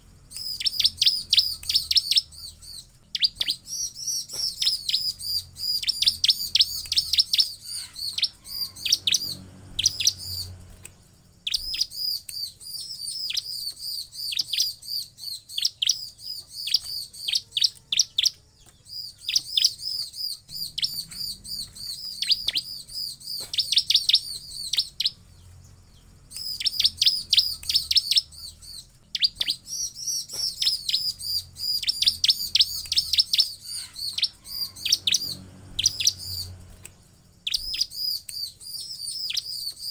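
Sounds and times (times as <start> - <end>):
bird calling in sharp high chirps: 0.3 - 39.9.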